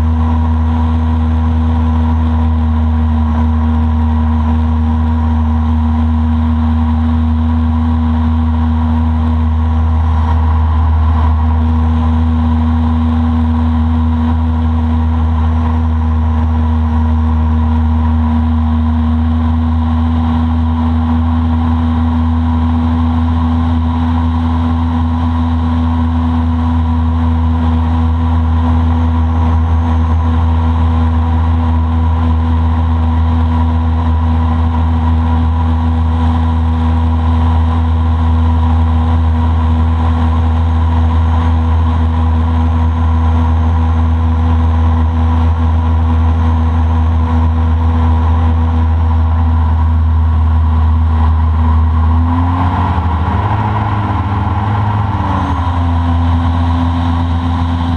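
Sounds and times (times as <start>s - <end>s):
boat motor droning: 0.0s - 57.9s.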